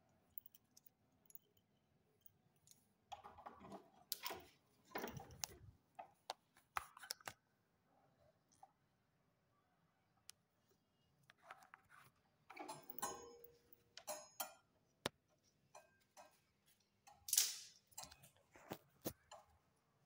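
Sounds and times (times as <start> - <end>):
metal bolt clicking and rattling: 2.6 - 5.7, 12.5 - 14.7.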